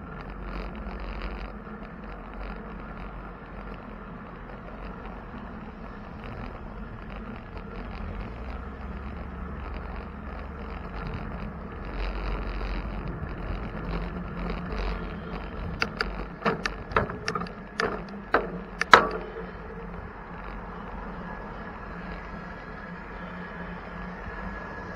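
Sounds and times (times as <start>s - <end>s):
wind and road noise: 0.0s - 24.9s
sharp clicks or knocks: 15.6s - 20.0s.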